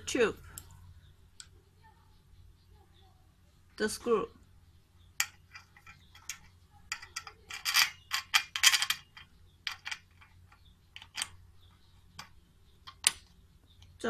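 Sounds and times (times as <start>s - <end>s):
stand parts clicking and rattling: 5.2s - 11.4s.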